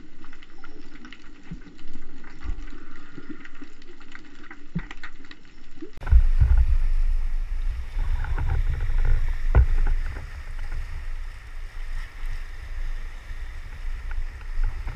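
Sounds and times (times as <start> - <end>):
muffled underwater sound: 5.9 - 14.9
waves washing against rocks: 6.0 - 14.9
wind buffeting microphone: 6.0 - 14.9.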